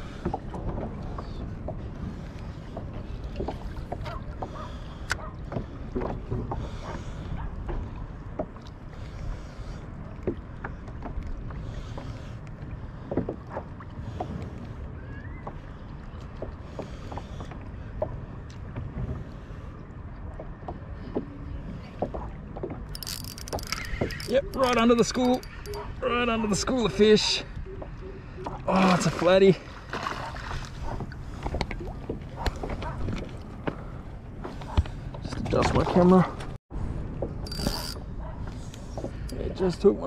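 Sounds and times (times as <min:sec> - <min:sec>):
water slapping against kayak: 0:00.0 - 0:36.6
wind rumble on microphone: 0:30.7 - 0:40.0.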